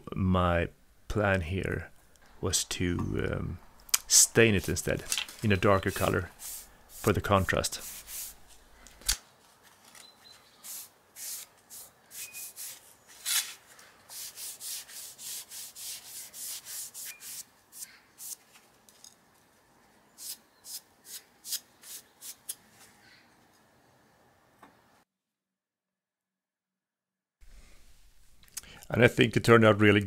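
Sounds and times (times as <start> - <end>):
hissing rubbing strokes on wood: 4.1 - 8.7, 10.6 - 12.9.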